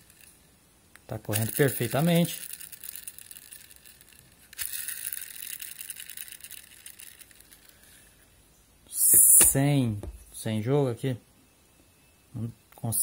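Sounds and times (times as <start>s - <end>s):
gears whirring and ticking: 1.4s - 7.8s.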